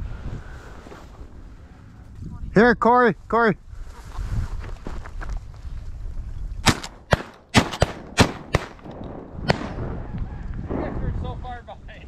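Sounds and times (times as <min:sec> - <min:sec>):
shotgun shots: 0:06.6 - 0:10.1.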